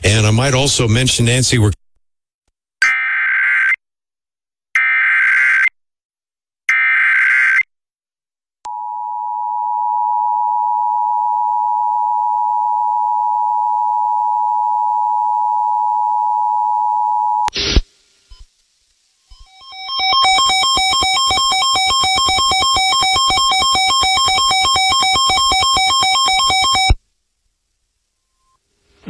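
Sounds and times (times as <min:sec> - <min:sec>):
burst of noise: 0:17.5 - 0:18.6
buzzy data bursts: 0:19.3 - 0:27.0
two-tone attention signal: 0:19.3 - 0:27.0.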